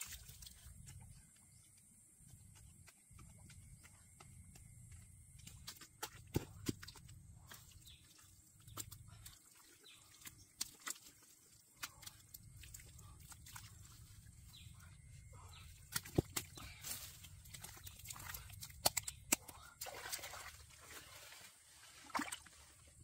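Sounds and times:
mud squelches: 0:00.0 - 0:23.0
hands digging wet mud: 0:05.4 - 0:22.8.

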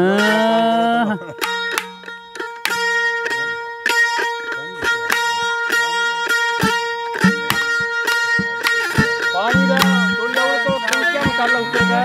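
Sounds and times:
plucked string instrument: 0:00.0 - 0:12.0
low booming bending notes: 0:07.2 - 0:12.0
ringing drone: 0:07.2 - 0:12.0.

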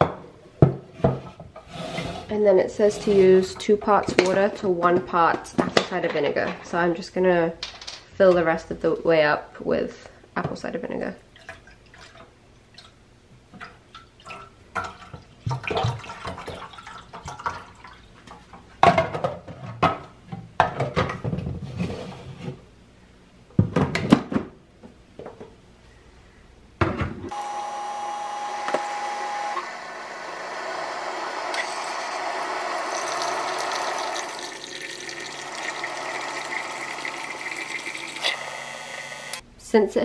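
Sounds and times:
coffee maker running: 0:27.3 - 0:39.4
coffee maker tone: 0:27.3 - 0:39.4
liquid streaming into jar: 0:31.5 - 0:39.4.

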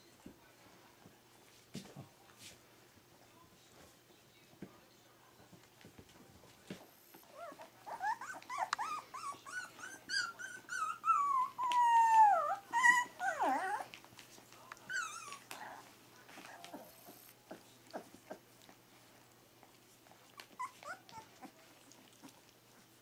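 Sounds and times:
puppy whining: 0:06.9 - 0:23.0.

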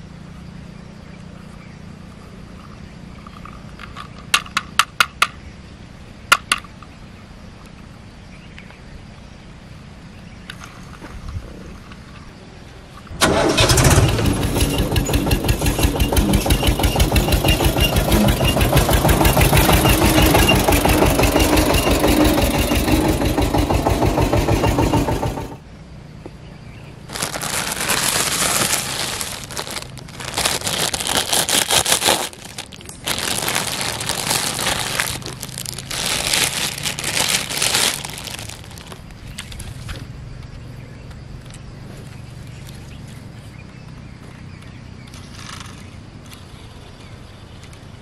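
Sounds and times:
tractor engine chugging: 0:13.2 - 0:25.6, 0:27.1 - 0:38.9
plastic bag crinkling: 0:27.1 - 0:39.1.

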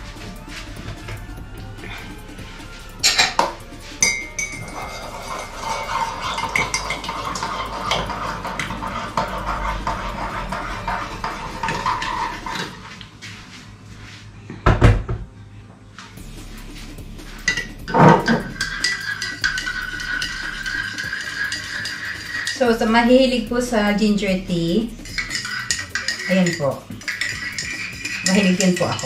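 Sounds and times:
hot water pouring into mug: 0:18.0 - 0:22.6.

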